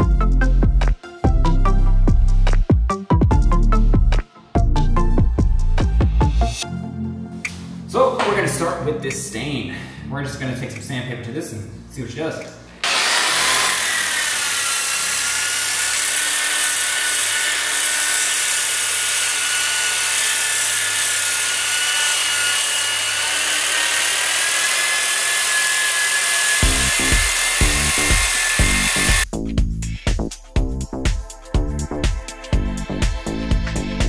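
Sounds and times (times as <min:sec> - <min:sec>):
music with steady beat: 0:00.0 - 0:08.6, 0:26.6 - 0:34.0
power sander whining: 0:12.8 - 0:29.2.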